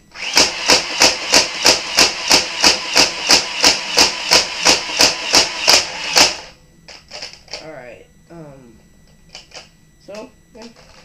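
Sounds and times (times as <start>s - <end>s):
motor whirring: 0.2s - 6.5s.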